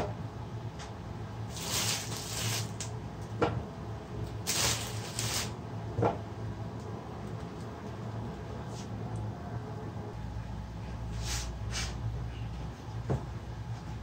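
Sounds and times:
low steady hum: 0:00.0 - 0:14.0
bread rustling: 0:01.5 - 0:02.9, 0:04.4 - 0:05.6.

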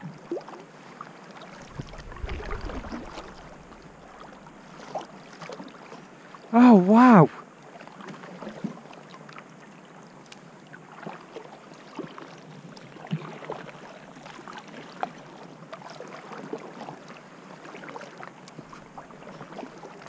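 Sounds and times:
water lapping against kayak: 0:00.0 - 0:20.0
paddle splashes: 0:00.3 - 0:06.5, 0:10.9 - 0:20.0.

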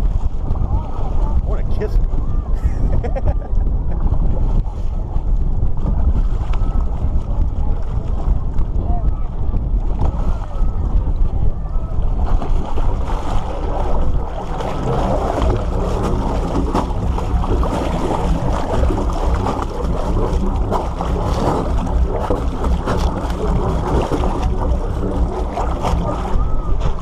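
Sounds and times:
water splashing against boat hull: 0:00.0 - 0:27.0
wind rumble on microphone: 0:00.0 - 0:27.0.

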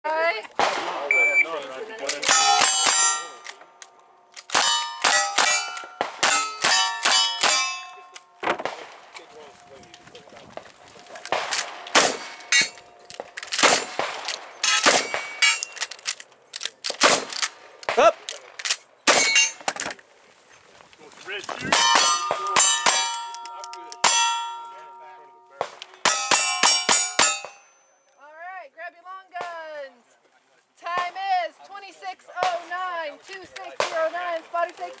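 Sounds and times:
rifle shots: 0:00.6 - 0:01.3, 0:11.3 - 0:12.7, 0:13.4 - 0:16.1, 0:16.9 - 0:19.5
steel plate ringing: 0:02.3 - 0:03.4, 0:04.6 - 0:08.2, 0:12.2 - 0:12.9, 0:14.6 - 0:15.8, 0:19.2 - 0:19.6, 0:21.8 - 0:25.4, 0:26.0 - 0:28.0.

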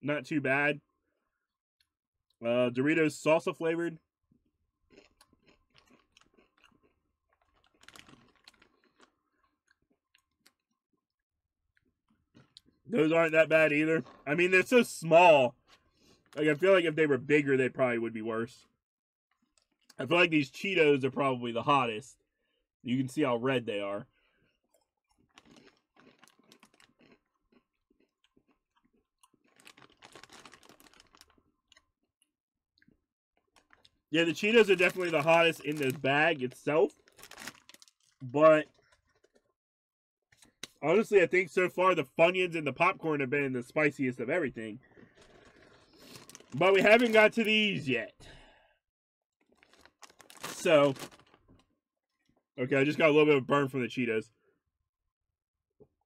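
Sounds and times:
crunching tortilla chips: 0:04.9 - 0:10.8, 0:25.0 - 0:31.9, 0:33.4 - 0:39.5, 0:44.8 - 0:47.6, 0:49.4 - 0:51.7.

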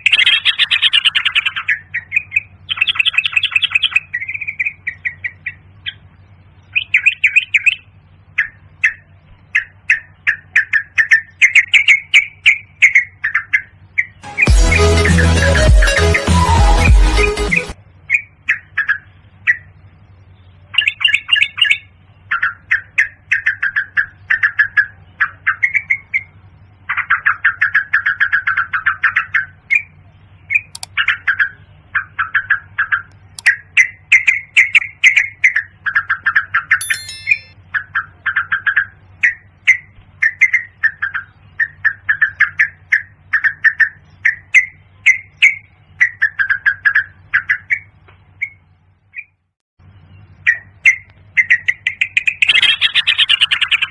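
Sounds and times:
bird chattering calls: 0:00.0 - 0:06.0, 0:06.7 - 0:15.3, 0:50.4 - 0:53.9
steady low hum: 0:00.0 - 0:15.1.

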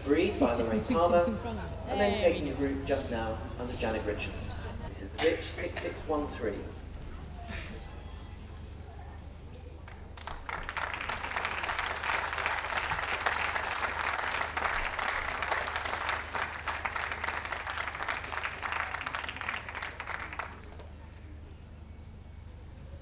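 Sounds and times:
crowd applauding: 0:09.8 - 0:21.2.

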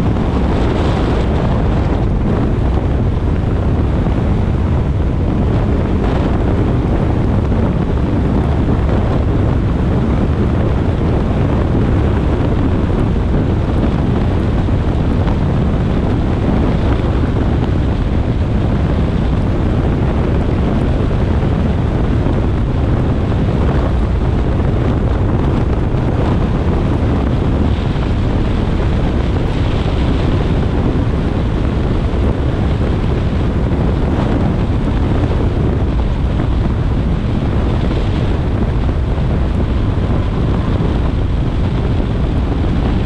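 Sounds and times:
car driving on wet road: 0:00.0 - 0:43.0
wind on microphone: 0:00.0 - 0:43.0.

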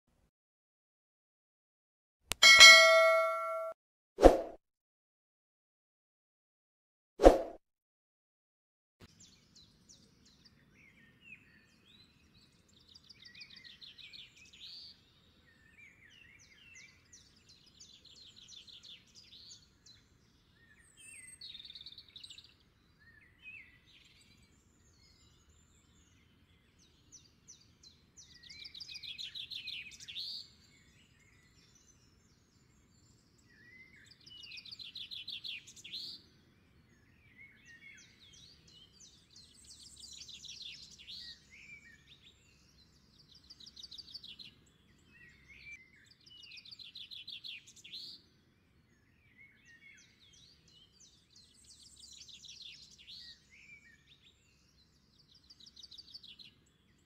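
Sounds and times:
short bird chirps: 0:02.4 - 0:04.4.

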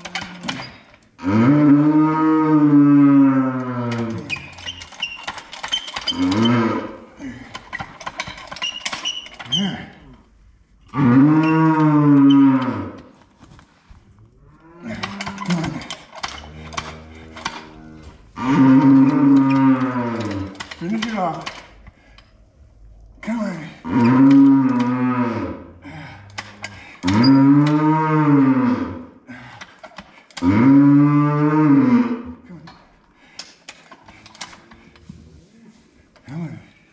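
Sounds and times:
cow mooing loudly: 0:01.2 - 0:04.3, 0:10.9 - 0:12.9, 0:16.4 - 0:20.5, 0:23.8 - 0:29.0, 0:30.4 - 0:32.2
cow bellowing: 0:06.0 - 0:07.0, 0:10.9 - 0:13.0, 0:14.5 - 0:21.1, 0:23.3 - 0:29.0.

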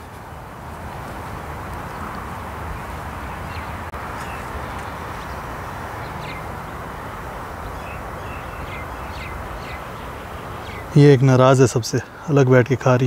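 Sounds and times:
outdoor rushing noise: 0:00.0 - 0:13.0
high bird chirps: 0:07.6 - 0:11.0.

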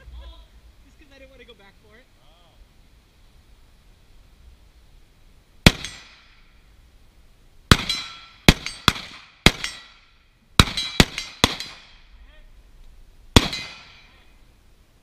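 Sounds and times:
rifle shots with metallic ring: 0:05.7 - 0:06.4, 0:07.7 - 0:12.1, 0:13.4 - 0:14.2.

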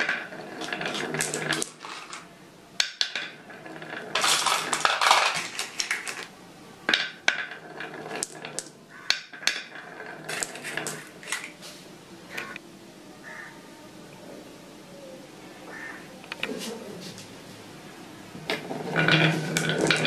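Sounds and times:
glass marbles rolling on wood: 0:00.0 - 0:06.3, 0:06.9 - 0:11.5, 0:18.4 - 0:20.0
marbles clacking together: 0:00.0 - 0:06.3, 0:06.9 - 0:11.5, 0:18.5 - 0:20.0.

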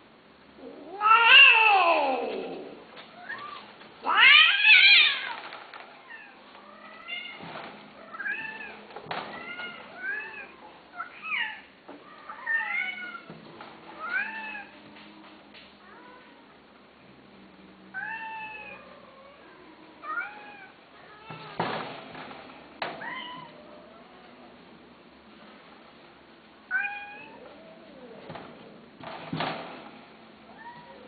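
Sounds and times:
cat yowling: 0:00.6 - 0:02.6
cat meowing: 0:00.6 - 0:05.4.

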